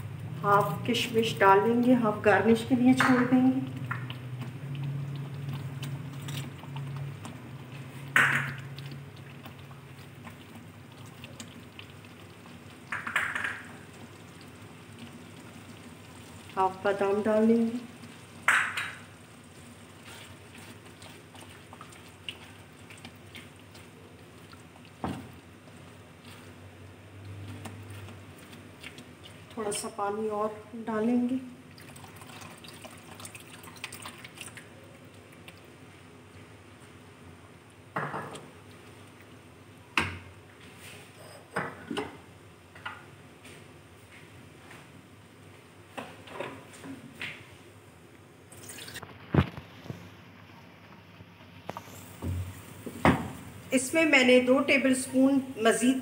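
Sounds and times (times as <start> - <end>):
halwa bubbling in a pan: 0.0 - 56.0
spatula stirring in a pan: 2.8 - 30.0.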